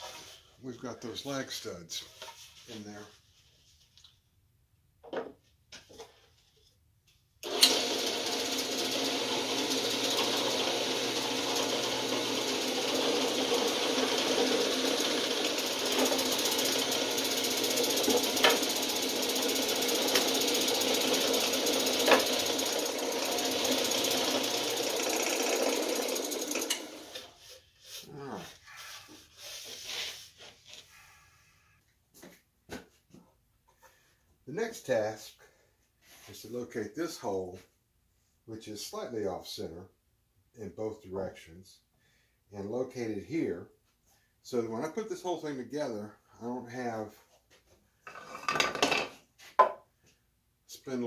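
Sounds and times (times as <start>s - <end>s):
motor clicks: 7.4s - 8.0s, 25.0s - 27.3s
drill press motor running: 7.4s - 27.3s.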